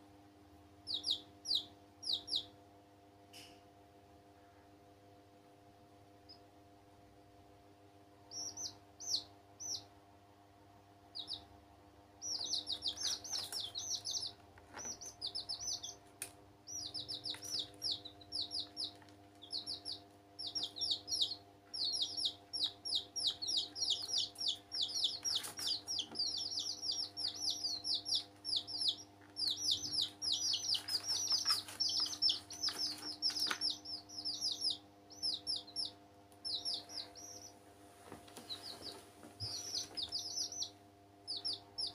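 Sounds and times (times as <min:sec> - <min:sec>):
chicks peeping: 0:00.8 - 0:02.6, 0:06.2 - 0:06.5, 0:08.2 - 0:10.0, 0:11.1 - 0:11.6, 0:12.2 - 0:41.9.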